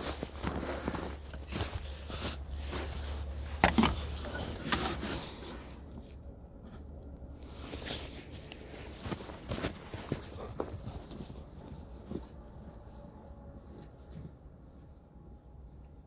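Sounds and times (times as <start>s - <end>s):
footsteps crunching in snow: 0.0s - 5.9s, 7.5s - 13.2s.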